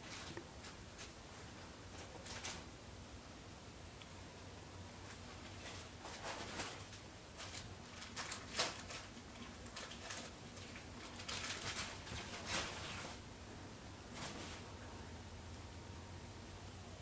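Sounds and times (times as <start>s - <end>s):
bedsheets rustling: 4.9s - 15.8s.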